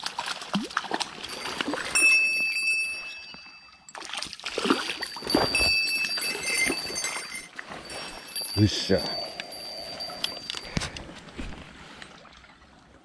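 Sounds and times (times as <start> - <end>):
fish splashing in water: 0.0 - 2.4, 4.0 - 6.3.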